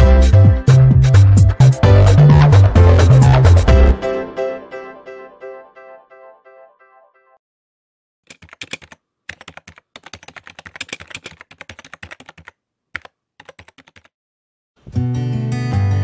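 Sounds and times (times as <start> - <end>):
keyboard key clicks: 8.3 - 14.1
guitar music: 14.8 - 16.0.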